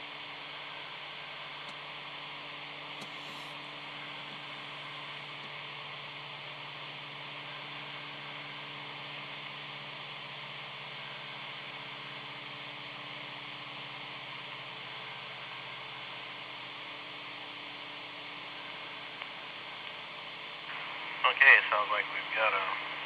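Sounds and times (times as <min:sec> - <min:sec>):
low speaker hum: 0:00.0 - 0:23.0
radio hiss: 0:02.9 - 0:09.5, 0:18.3 - 0:23.0.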